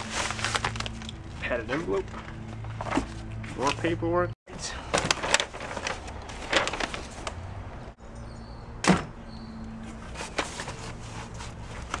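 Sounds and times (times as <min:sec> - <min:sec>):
paper rustling: 0:00.0 - 0:03.9, 0:04.8 - 0:07.6, 0:09.8 - 0:12.0.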